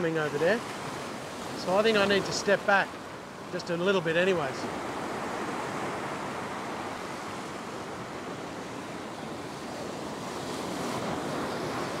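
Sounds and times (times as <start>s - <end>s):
surf washing over rock: 0.0s - 12.0s.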